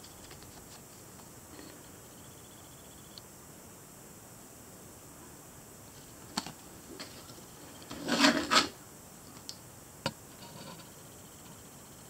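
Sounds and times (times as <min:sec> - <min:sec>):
cardboard rubbing scrapes: 0:07.9 - 0:08.8.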